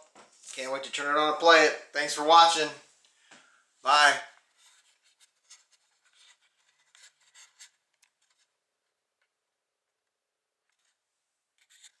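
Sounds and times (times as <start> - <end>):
faint rustles and scrapes: 4.4 - 8.5, 11.6 - 12.0.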